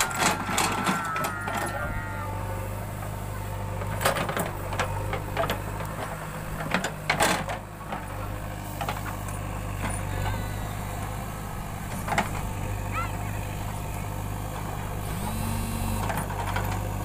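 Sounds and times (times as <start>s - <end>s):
digger bucket knocks and clanks: 0.0s - 1.7s, 3.0s - 10.4s, 11.8s - 12.7s, 16.0s - 17.0s
diesel engine running: 0.0s - 17.0s.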